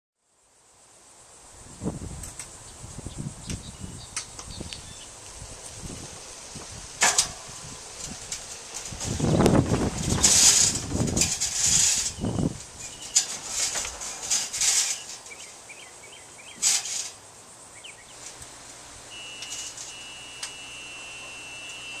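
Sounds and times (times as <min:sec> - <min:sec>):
metal ramps clattering and creaking: 0:06.6 - 0:15.5, 0:16.6 - 0:17.2
bird chirps: 0:12.1 - 0:13.2, 0:17.7 - 0:18.2
thin high tone: 0:19.1 - 0:22.0.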